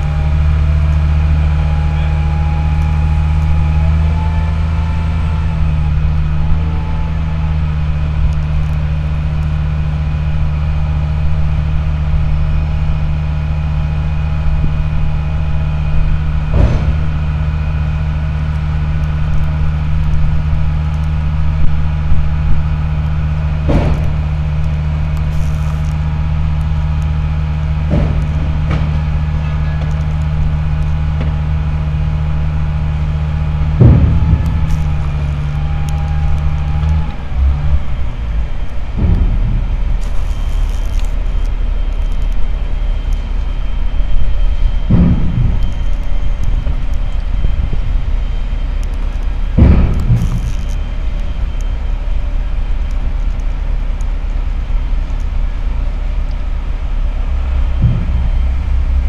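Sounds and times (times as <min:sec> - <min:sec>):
crane engine droning: 0:00.0 - 0:59.0
sharp knocks: 0:23.7 - 0:24.2, 0:33.8 - 0:35.9, 0:57.7 - 0:59.0.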